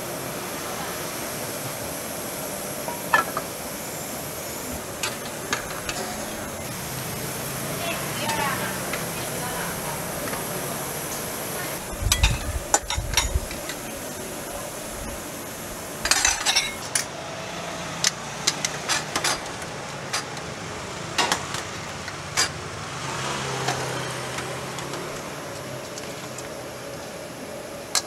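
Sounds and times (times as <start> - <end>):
food sizzling: 0.0 - 28.0
metal ladles clinking on pots: 2.8 - 3.6, 12.1 - 13.8, 16.0 - 17.1.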